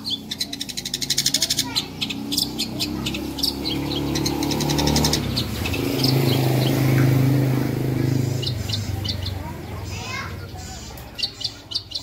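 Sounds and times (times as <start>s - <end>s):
bird singing high notes and trills: 0.0s - 12.0s.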